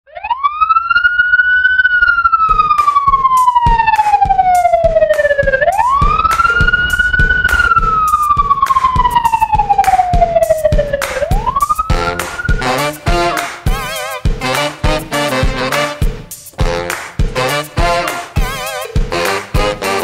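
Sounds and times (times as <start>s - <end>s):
siren wailing: 0.1s - 14.4s
steady drum beat: 2.5s - 20.0s.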